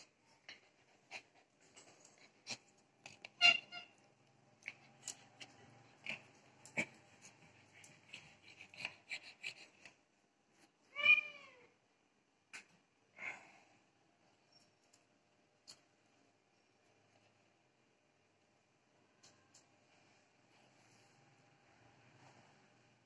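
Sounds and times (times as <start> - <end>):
cat meowing: 10.9 - 11.8
soft clicks and rustles: 18.3 - 23.0.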